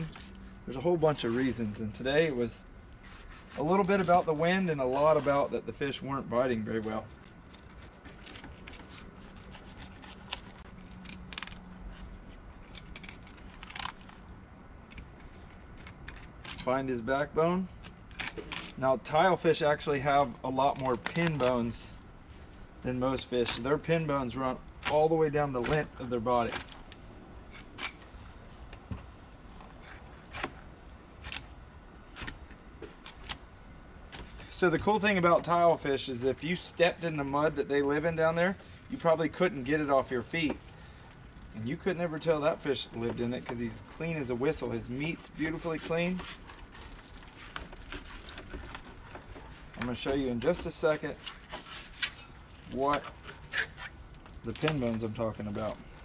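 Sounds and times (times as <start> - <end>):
knife scraping along fish bone: 3.0 - 4.4, 7.4 - 14.2, 45.1 - 49.1.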